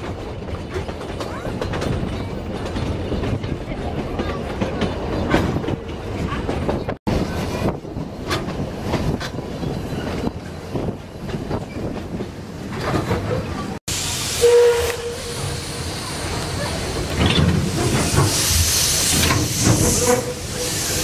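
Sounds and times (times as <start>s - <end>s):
train wheels clattering on rails: 0.0s - 13.8s, 14.9s - 21.0s
steam hissing: 13.9s - 21.0s.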